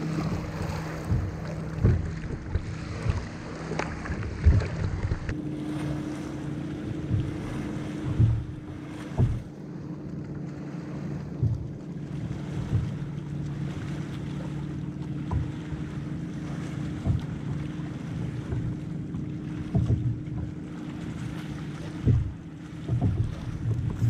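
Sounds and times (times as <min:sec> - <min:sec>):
wind on microphone: 0:00.0 - 0:09.5, 0:19.5 - 0:24.0
steady low hum: 0:00.0 - 0:24.0
waves lapping against kayak hull: 0:00.0 - 0:24.0
soft knocks: 0:06.9 - 0:09.5, 0:18.4 - 0:20.6, 0:22.0 - 0:24.0.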